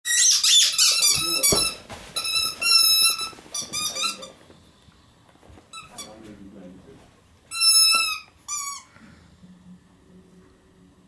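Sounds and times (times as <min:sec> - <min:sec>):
squeaky toy squeaking: 0:00.1 - 0:04.4, 0:05.7 - 0:06.1, 0:07.5 - 0:08.9.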